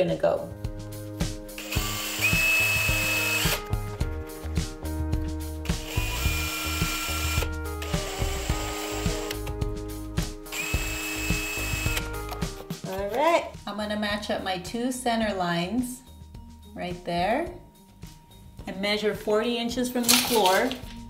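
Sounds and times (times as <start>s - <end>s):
background music: 0.0s - 21.0s
cordless drill whining: 1.6s - 3.7s, 5.8s - 9.5s, 10.5s - 12.4s.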